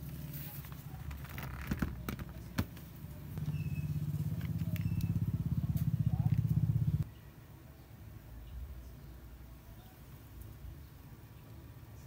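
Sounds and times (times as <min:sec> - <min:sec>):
low pulsing engine hum: 0:02.9 - 0:07.0.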